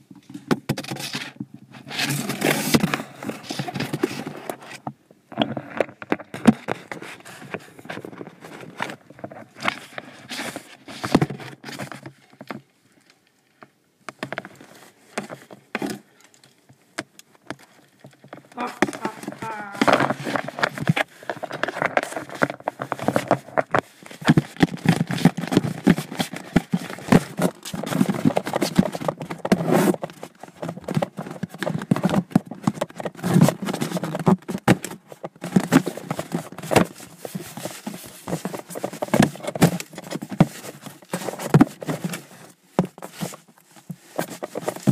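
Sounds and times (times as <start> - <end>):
indistinct voices: 18.5 - 20.1.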